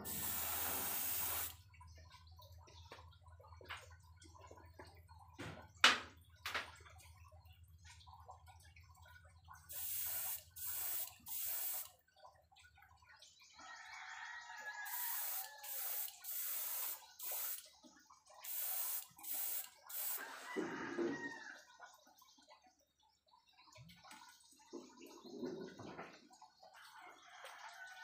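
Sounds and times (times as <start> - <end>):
airbrush spraying hiss: 0.0 - 1.5, 9.7 - 11.9, 14.9 - 17.6, 18.5 - 20.2.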